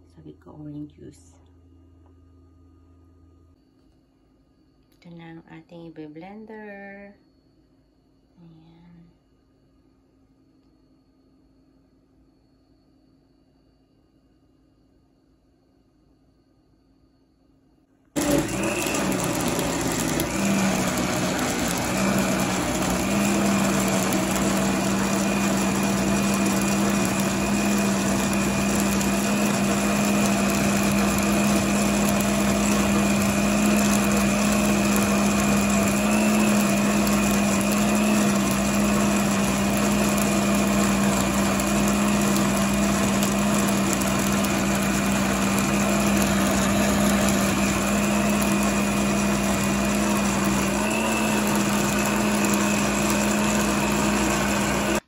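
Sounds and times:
blender motor whine: 0:18.2 - 0:55.0
liquid churning: 0:18.2 - 0:55.0.

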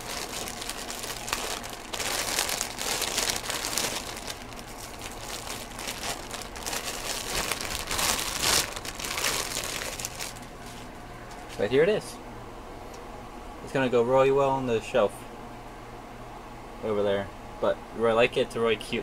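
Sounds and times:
packaging wrap crumpling and tearing: 0:00.0 - 0:10.5.

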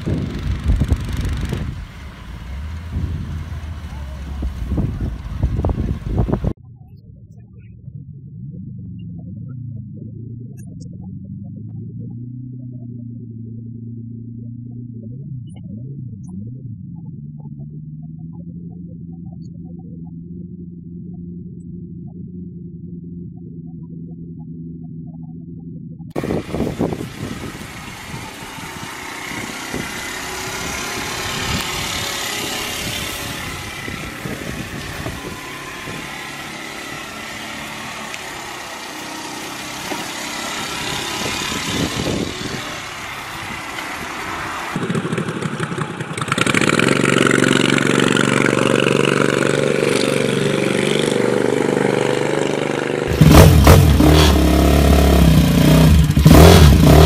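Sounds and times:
mini bike small engine: 0:00.0 - 0:06.5, 0:26.2 - 0:57.0
scooter engine passing: 0:00.0 - 0:06.6, 0:26.2 - 0:57.0
road and wind noise: 0:00.0 - 0:57.0.

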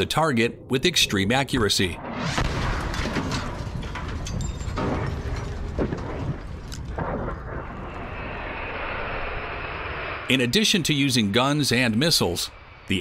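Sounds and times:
explosions rumbling: 0:00.5 - 0:13.0
sharp explosion cracks: 0:02.0 - 0:10.8.

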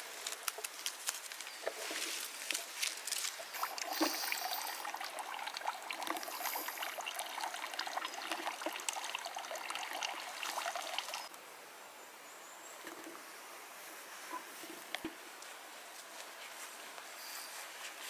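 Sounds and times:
water pouring into stone trough: 0:03.4 - 0:11.3.

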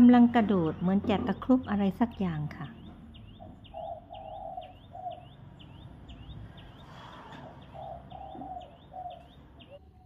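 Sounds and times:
bird chirping: 0:00.0 - 0:10.0
bird cooing: 0:03.2 - 0:10.0.

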